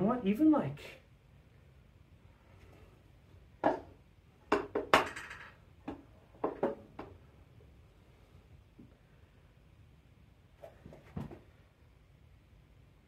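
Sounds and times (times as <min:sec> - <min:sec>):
metal clinks and knocks: 0:04.5 - 0:06.8.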